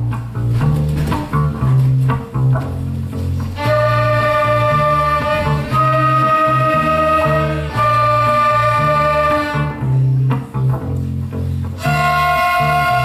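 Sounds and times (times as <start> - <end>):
low bass line: 0.0 - 13.0
violins: 3.5 - 10.2, 11.7 - 13.0
flutes: 3.6 - 10.4, 11.8 - 13.0.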